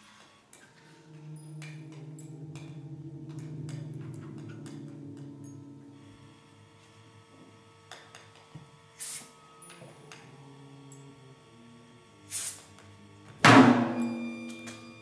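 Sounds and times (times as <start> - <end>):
sustained tones: 0.6 - 8.0, 13.5 - 15.0
hissing noise bursts: 12.3 - 12.7.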